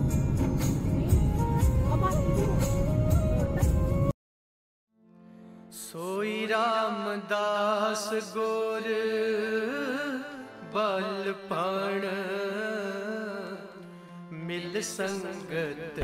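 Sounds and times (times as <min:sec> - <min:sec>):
person singing ornamented melody: 0:05.8 - 0:13.8.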